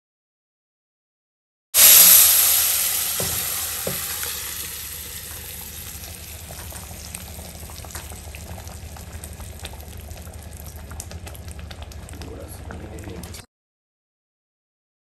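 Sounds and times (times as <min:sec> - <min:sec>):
hot oil sizzling: 0:01.8 - 0:13.3.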